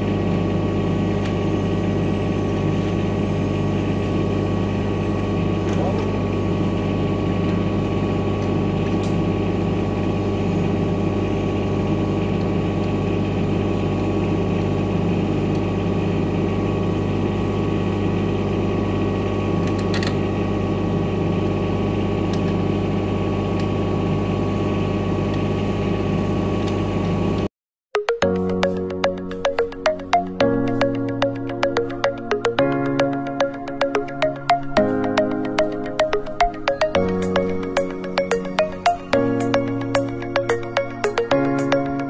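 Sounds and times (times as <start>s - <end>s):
diesel generator engine running: 0.0s - 27.5s.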